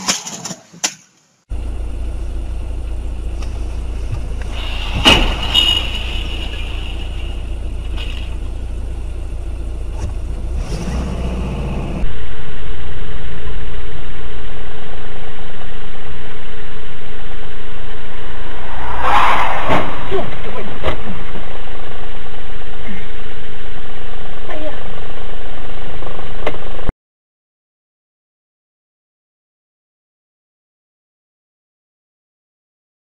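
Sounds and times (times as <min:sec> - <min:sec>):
car engine and road noise: 0:00.0 - 0:26.9
loud steady rumble: 0:01.5 - 0:26.9.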